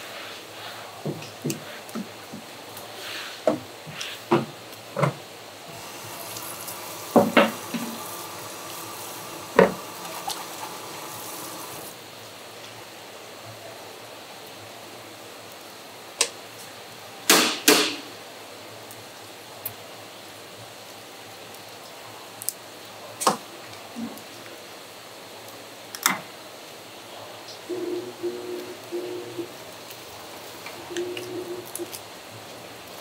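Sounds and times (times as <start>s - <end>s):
water running: 5.7s - 12.0s.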